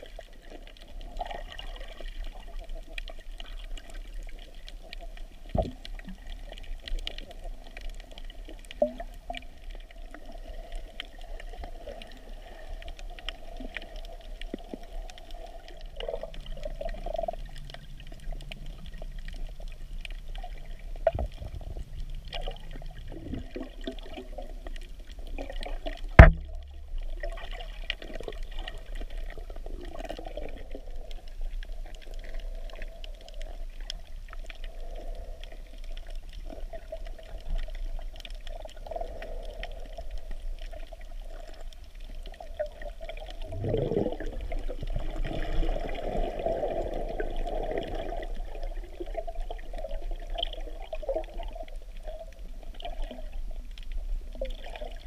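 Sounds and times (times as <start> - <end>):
muffled underwater water noise: 0.0 - 55.0
sharp knock: 26.2 - 26.6.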